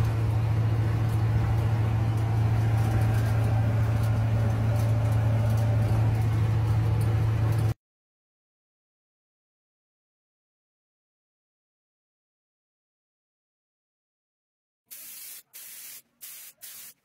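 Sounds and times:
engine and road noise in car cabin: 0.0 - 7.8.

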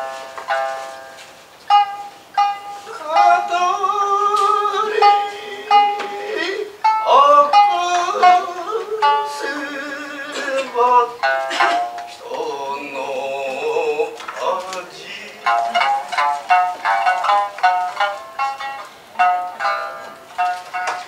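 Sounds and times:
shamisen plucks: 0.0 - 21.0
person singing wavering notes: 1.7 - 17.6.

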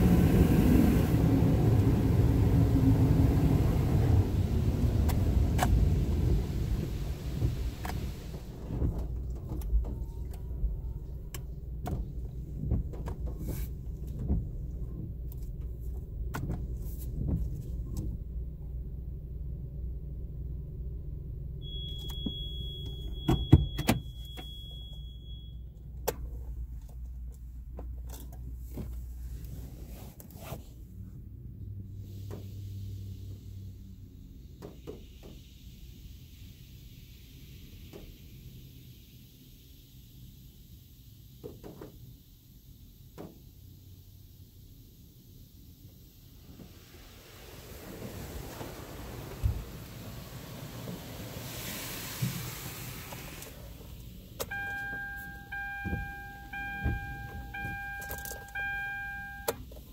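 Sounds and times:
car wash spray rumble: 0.0 - 18.8, 28.6 - 59.9
thin high tone: 54.5 - 59.6
knocks and drips: 55.8 - 57.8.

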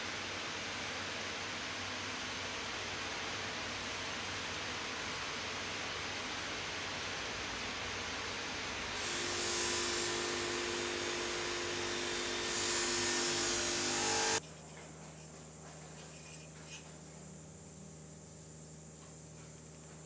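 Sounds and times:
hiss: 8.8 - 14.4
low hum: 8.9 - 14.4
small motor whine: 8.9 - 14.4.

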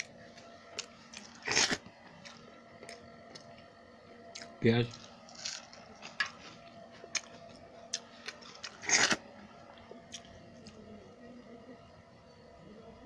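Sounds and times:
loud crunch biting raw onion: 1.3 - 1.8, 7.9 - 9.2.

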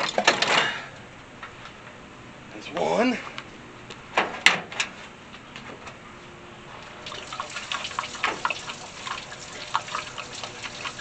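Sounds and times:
liquid splashing into a pan: 7.1 - 11.0.

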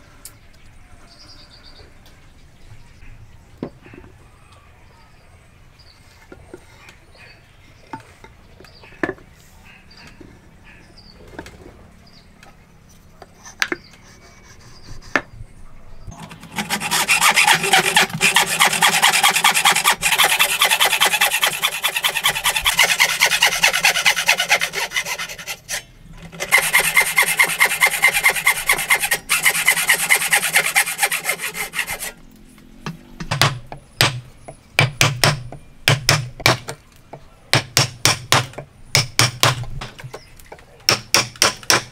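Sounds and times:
hand saw cutting wood: 16.1 - 32.2
chisel being struck: 37.5 - 39.6, 40.9 - 41.9.

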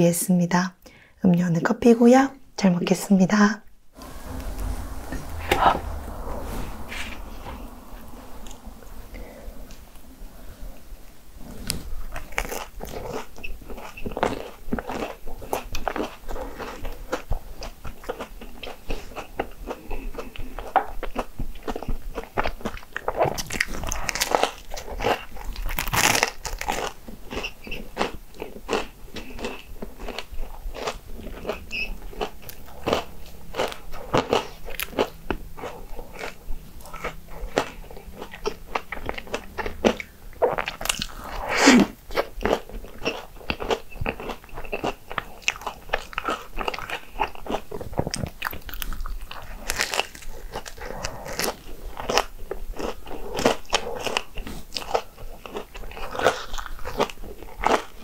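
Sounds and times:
waffles crunching while chewed: 11.6 - 58.0.

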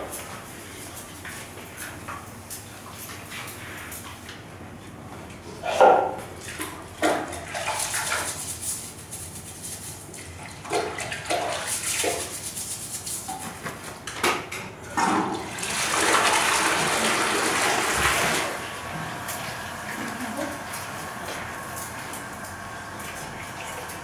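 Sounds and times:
toilet flushing: 5.6 - 8.5, 10.1 - 12.6, 14.8 - 24.0
toilet brush scrubbing: 6.4 - 13.8, 15.4 - 22.2.

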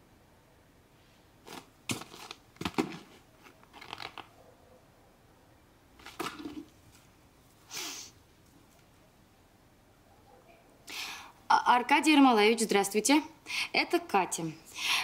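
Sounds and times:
paper rustling: 1.5 - 4.3.

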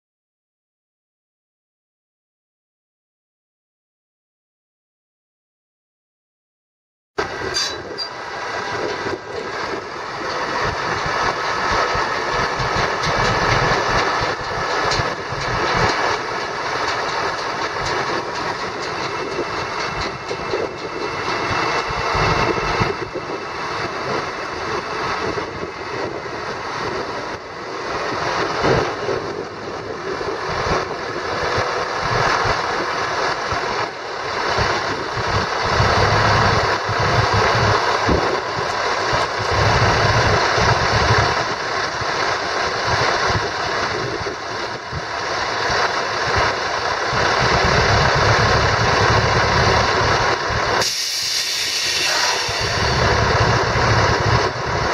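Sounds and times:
diesel truck engine running: 7.2 - 54.9
hydraulic hoist raising: 50.8 - 54.5.

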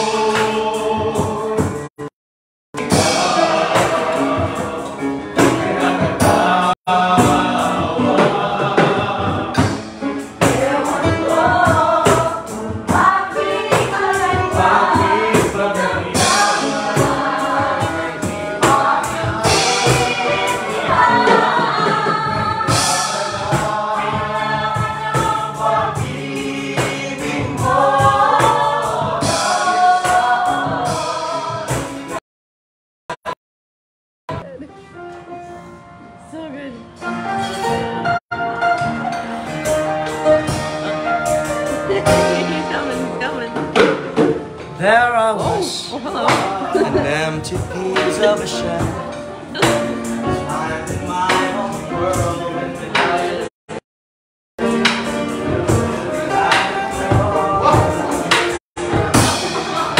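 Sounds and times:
group singing together: 0.0 - 1.9, 2.8 - 32.2, 39.1 - 53.5, 54.6 - 59.9
steady beat: 44.8 - 53.4.

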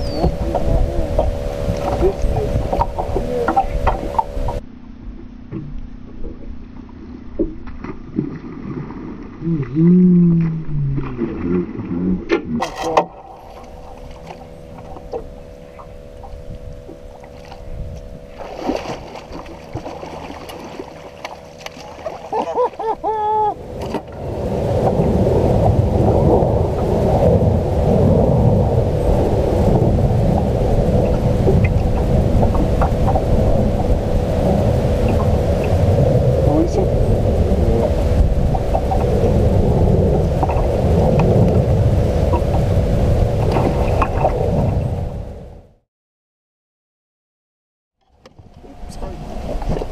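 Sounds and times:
wind buffeting microphone: 0.0 - 4.6, 13.6 - 45.7
faint steady hum: 0.0 - 45.6, 48.0 - 49.9.

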